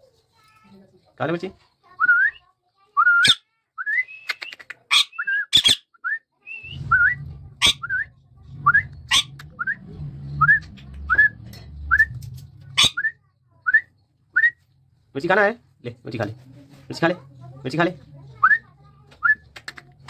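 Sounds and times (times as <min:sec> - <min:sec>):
parakeet squawking: 0:04.9 - 0:05.9, 0:07.6 - 0:08.0, 0:09.1 - 0:09.6, 0:12.8 - 0:13.1
parakeet whistling: 0:06.5 - 0:08.1.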